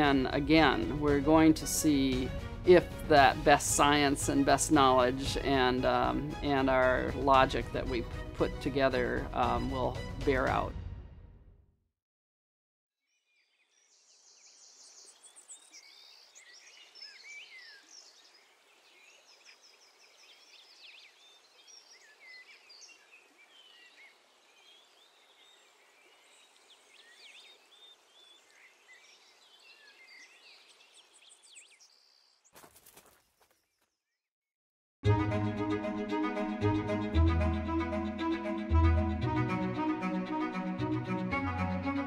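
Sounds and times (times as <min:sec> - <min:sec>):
small birds chirping: 0:13.2 - 0:34.2.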